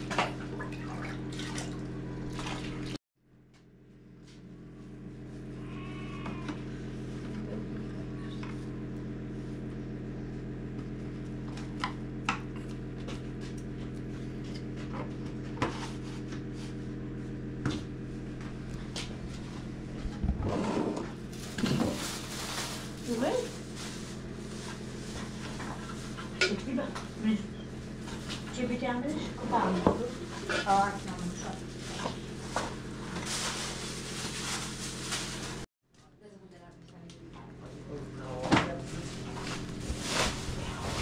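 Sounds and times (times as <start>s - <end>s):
steady low hum: 0.0s - 41.0s
faint livestock bleat: 5.4s - 6.8s.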